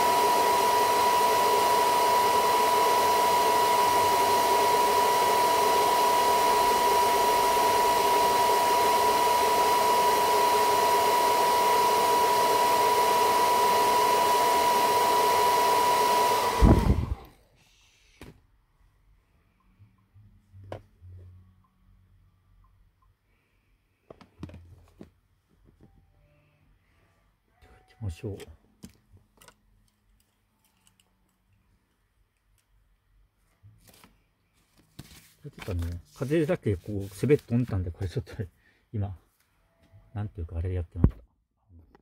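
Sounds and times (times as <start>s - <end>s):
hair dryer blowing with whine: 0.0s - 17.4s.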